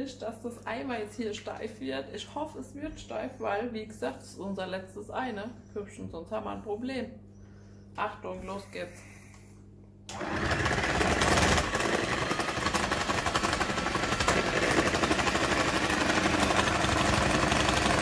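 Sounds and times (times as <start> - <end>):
electric hand mixer whisking: 10.1 - 18.0.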